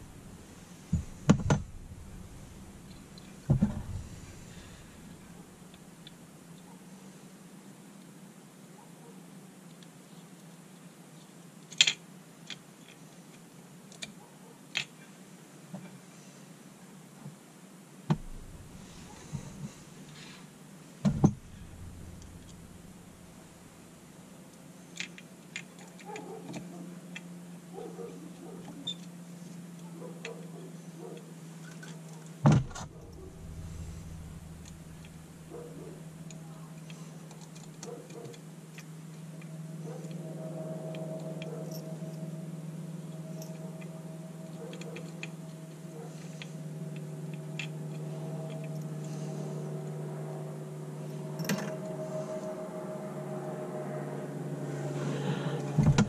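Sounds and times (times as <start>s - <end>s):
steady low hum: 0.0s - 6.4s, 18.1s - 24.8s, 31.3s - 56.0s
high steady tone: 39.1s - 53.1s.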